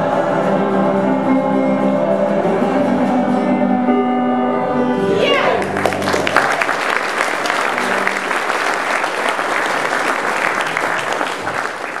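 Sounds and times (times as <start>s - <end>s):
audience applause: 5.5s - 12.0s.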